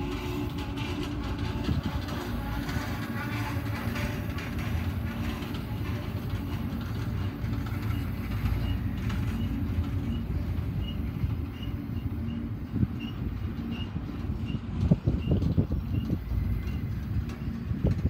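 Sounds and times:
clicking over rail joints: 0.0s - 18.0s
train wheels rumbling on rails: 0.0s - 18.0s.

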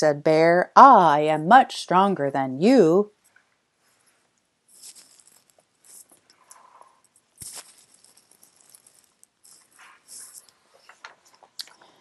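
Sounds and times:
paper book pages rustling: 3.9s - 6.3s, 7.4s - 11.4s.

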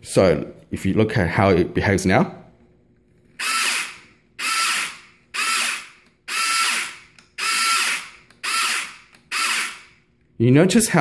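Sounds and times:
toy blaster motor whirring: 3.4s - 10.0s.

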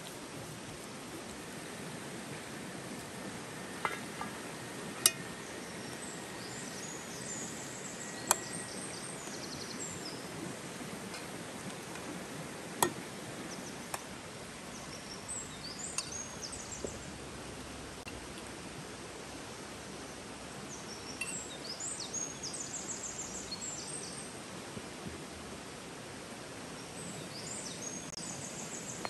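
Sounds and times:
river rushing: 0.0s - 29.0s
birds chirping: 2.6s - 10.5s, 12.6s - 17.2s, 20.0s - 24.3s.

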